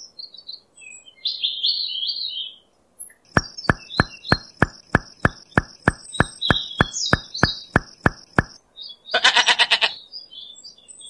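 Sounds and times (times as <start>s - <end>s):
regular clicking: 3.3s - 8.6s
birds chirping: 3.3s - 9.2s
sheep bleating: 9.2s - 10.0s.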